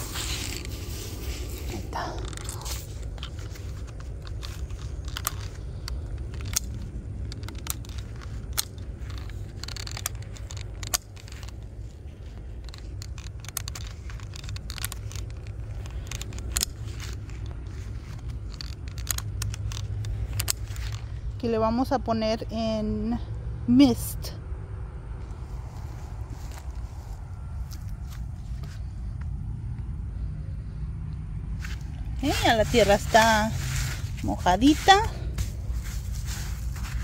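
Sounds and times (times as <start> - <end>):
steady low rumble: 0.0 - 37.0
sharp clicks: 1.8 - 21.2.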